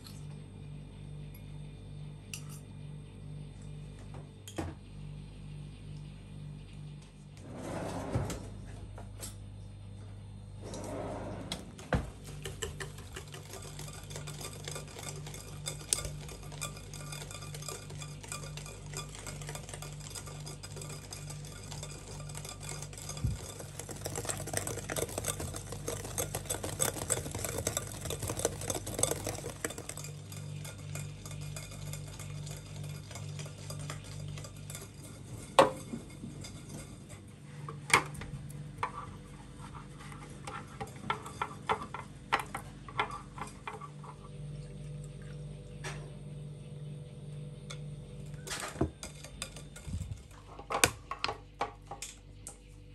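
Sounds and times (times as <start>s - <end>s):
whisk knocking: 12.0s - 37.2s, 38.8s - 43.9s, 48.7s - 50.9s
wire whisk beating in glass bowl: 12.1s - 37.3s, 38.8s - 44.2s, 48.3s - 50.9s.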